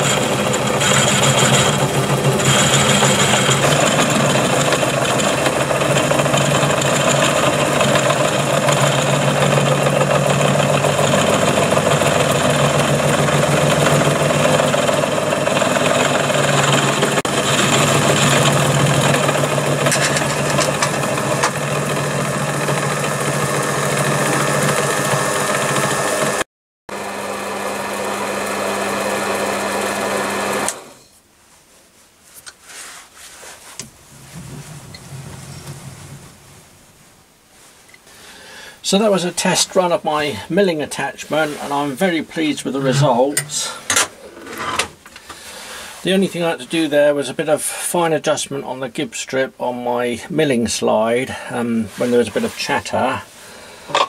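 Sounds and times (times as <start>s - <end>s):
end mill milling steel: 0.0s - 31.2s, 33.9s - 37.4s, 39.5s - 45.0s.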